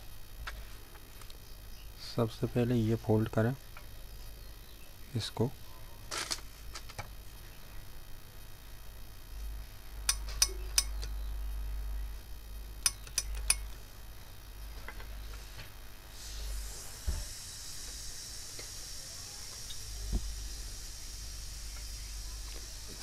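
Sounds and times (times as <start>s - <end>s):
sharp clicks: 10.0s - 11.2s, 12.8s - 13.7s
steam hissing from iron: 15.3s - 23.0s
dull thump: 20.1s - 20.4s.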